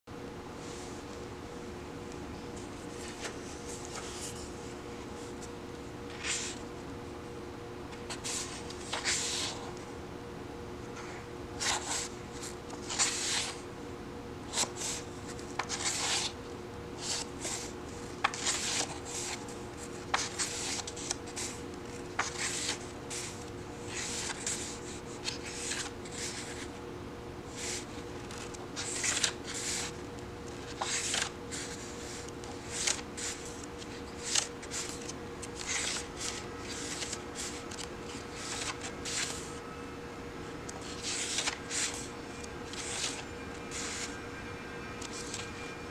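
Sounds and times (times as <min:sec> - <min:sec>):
steady low hum: 0:00.1 - 0:45.9
book pages turning: 0:02.6 - 0:04.5, 0:05.2 - 0:06.7, 0:07.9 - 0:09.8, 0:11.6 - 0:13.6, 0:14.5 - 0:16.4, 0:17.0 - 0:26.8, 0:27.5 - 0:39.6, 0:40.7 - 0:44.2, 0:45.0 - 0:45.6.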